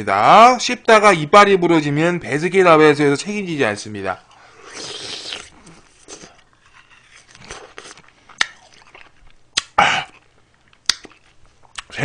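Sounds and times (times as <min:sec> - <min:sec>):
person chewing crunchy food: 0:04.3 - 0:11.9.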